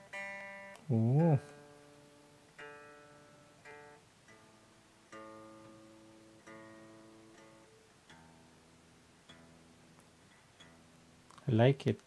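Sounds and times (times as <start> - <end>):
acoustic guitar strings plucked: 0.0 - 11.4.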